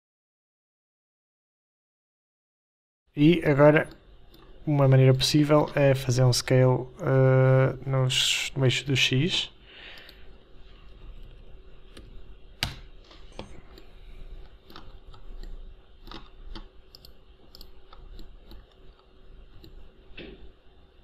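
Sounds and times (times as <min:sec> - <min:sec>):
mouse and keyboard clicks: 0:10.9 - 0:20.3.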